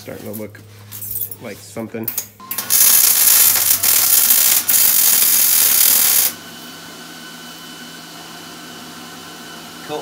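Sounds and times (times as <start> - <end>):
welder arc crackling: 2.6 - 6.4.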